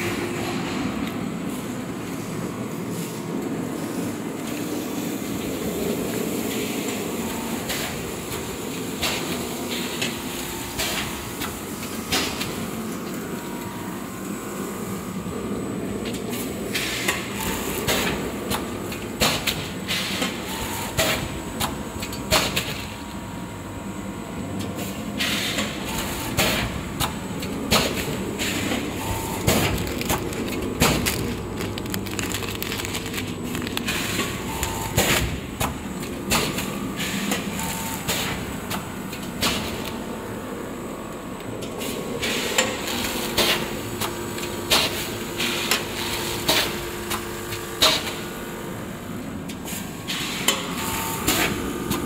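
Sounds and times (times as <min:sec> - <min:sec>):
packaging machine clatter: 0:27.7 - 0:36.7
sealing mechanism clacks: 0:27.8 - 0:35.4.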